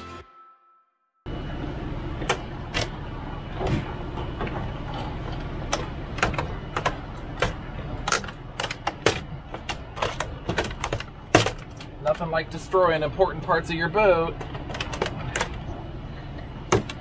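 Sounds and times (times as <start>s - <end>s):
steady low hum: 1.3s - 17.0s
switch panel clicking and knocking: 5.7s - 11.9s, 16.7s - 17.0s.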